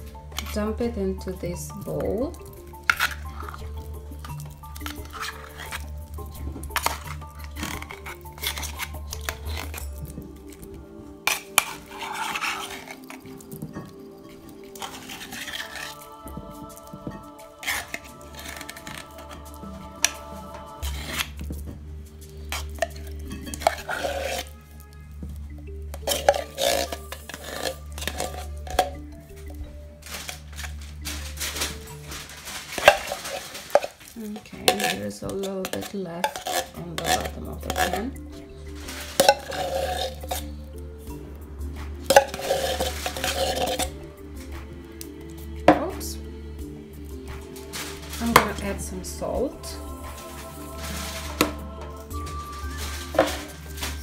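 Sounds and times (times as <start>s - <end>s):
metal spoon scraping a tin can: 0.0s - 0.9s, 1.7s - 16.4s, 17.5s - 21.6s, 22.3s - 25.1s, 25.9s - 40.7s, 42.0s - 44.5s, 47.0s - 54.0s
quiet background music: 0.0s - 54.0s
spoon clinking on a steel bowl: 22.5s - 24.9s, 25.9s - 29.0s, 34.7s - 38.3s.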